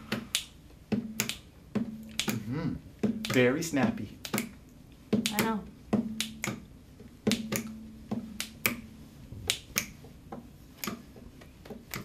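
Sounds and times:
fingers snapping: 0.1 - 2.5, 3.2 - 3.5, 4.2 - 6.7, 7.3 - 8.9, 9.5 - 10.1, 10.8 - 11.1, 11.7 - 12.0.

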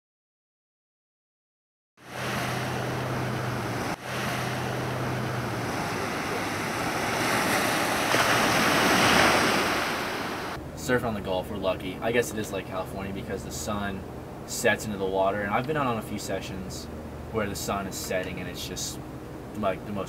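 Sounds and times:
waves washing onto beach: 2.0 - 10.6.

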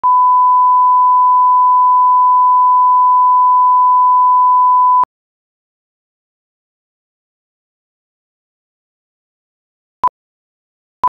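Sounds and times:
line-up tone beep: 0.0 - 5.1.

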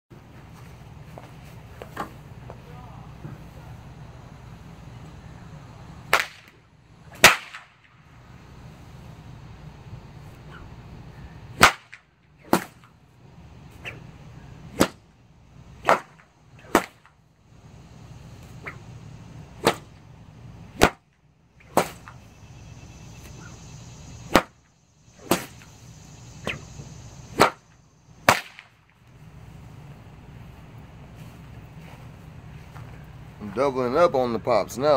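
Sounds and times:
whip cracking: 6.1 - 8.0, 11.6 - 13.0, 13.7 - 14.0, 14.7 - 15.0, 15.8 - 17.2, 18.4 - 18.8, 19.6 - 20.0, 20.8 - 22.2, 24.3 - 24.6, 25.2 - 25.8, 26.4 - 29.0.

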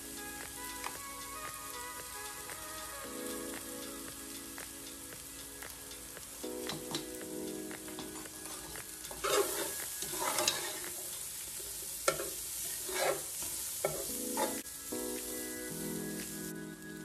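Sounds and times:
food sizzling in a pot: 0.0 - 17.0
spoon scraping a pot: 9.2 - 10.9, 12.1 - 13.3.

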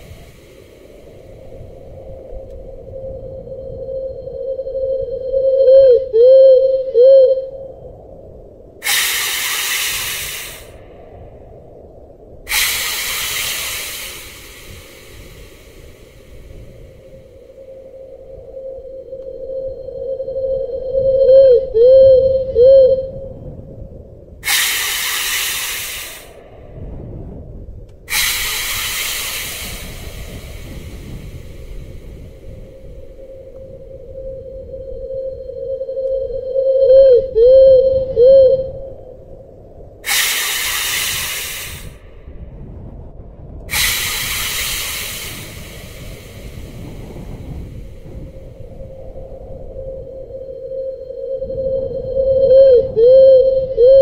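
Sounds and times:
hissing: 8.8 - 20.2, 24.4 - 26.9, 28.1 - 36.2, 40.0 - 42.2, 43.7 - 48.2.

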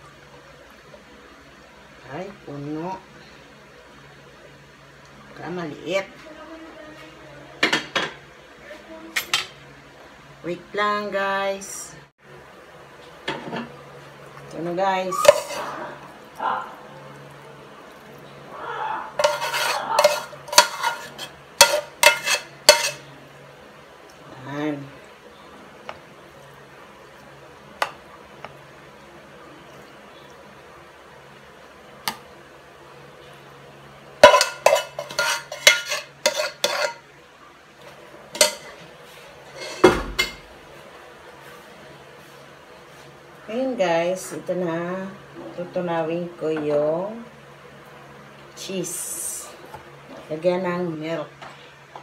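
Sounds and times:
utensil scraping pasta from pot: 15.0 - 15.9, 19.2 - 23.1, 34.2 - 37.0, 38.4 - 40.0
spoon clinking in metal pot: 34.2 - 37.0.

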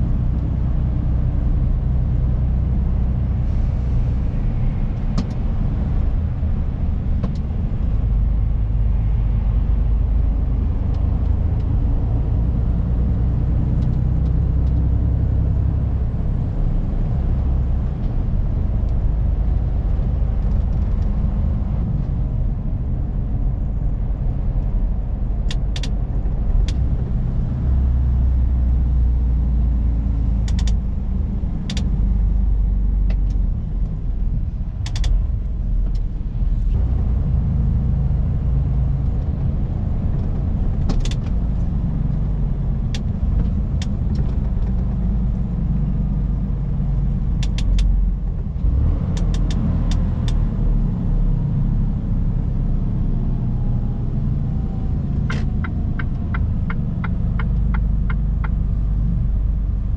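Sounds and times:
sharp clicks: 30.4 - 30.8, 31.7 - 31.9, 34.8 - 35.2, 47.4 - 47.9.

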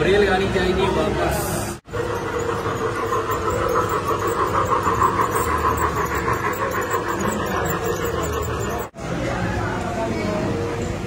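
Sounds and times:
model train whine: 1.8 - 8.9
wheels clicking on rails: 1.8 - 9.0.

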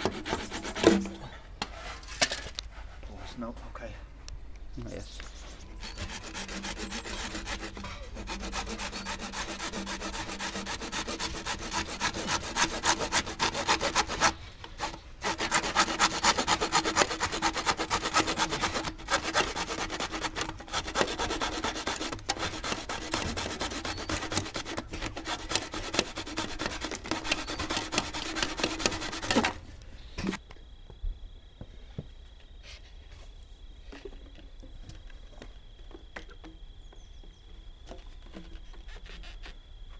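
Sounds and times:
handsaw cutting plastic pipe: 0.0 - 2.1, 5.8 - 29.6, 38.3 - 39.6.

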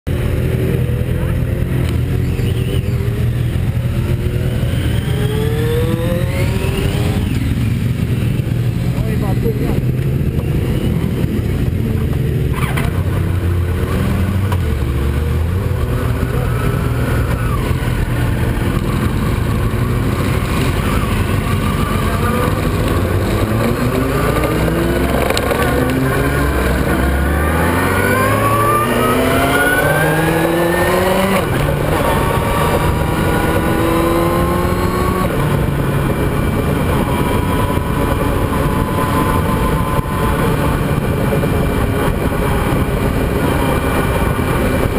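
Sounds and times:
motorcycle engine accelerating: 0.1 - 44.9.

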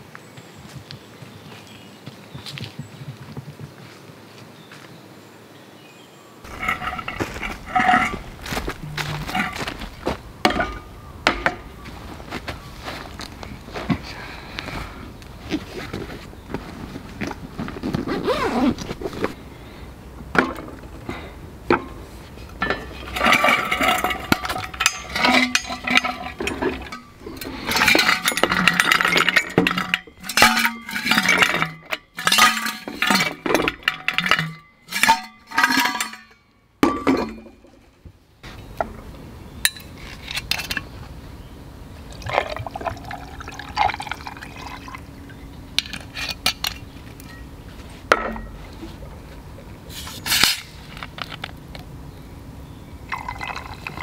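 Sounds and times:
ice clinking in glass mug: 42.2 - 45.1, 53.1 - 54.0
whisky pouring over ice: 42.2 - 45.1, 53.1 - 54.0.

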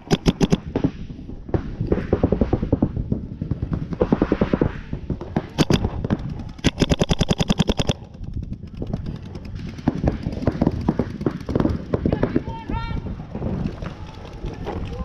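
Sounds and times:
paintball marker firing rapidly: 0.0 - 1.0, 1.8 - 12.5.

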